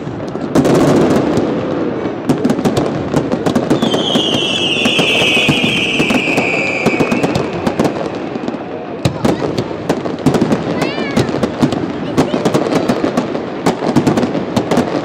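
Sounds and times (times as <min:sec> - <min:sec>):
fireworks bangs and crackles: 0:00.0 - 0:15.0
high falling whistle: 0:03.9 - 0:07.3.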